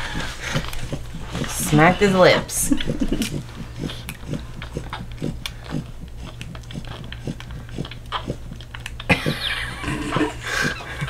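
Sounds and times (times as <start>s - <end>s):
puppy suckling with wet smacks: 3.1s - 9.1s.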